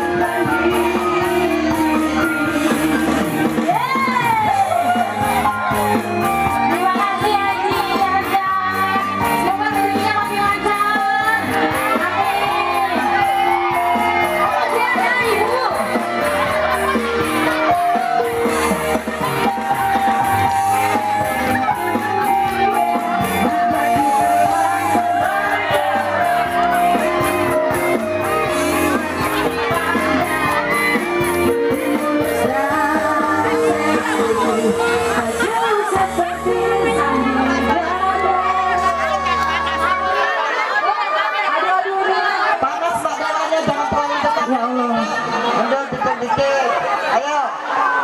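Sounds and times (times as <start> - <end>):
woman singing: 0.0 - 5.8, 6.6 - 16.0, 31.5 - 39.2
live band with steady beat: 0.0 - 47.8
voices shouting and singing: 0.0 - 48.0.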